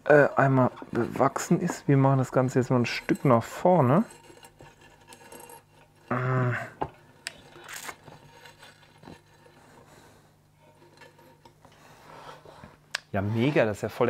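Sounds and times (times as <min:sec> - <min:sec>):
person humming: 0:06.1 - 0:06.9.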